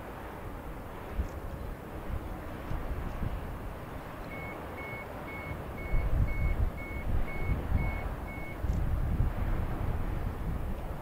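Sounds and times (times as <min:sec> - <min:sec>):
reversing alarm beeping: 0:04.3 - 0:08.6.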